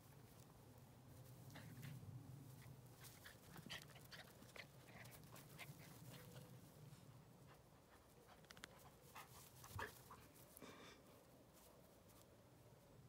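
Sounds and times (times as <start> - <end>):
dogs panting: 1.5 - 10.4.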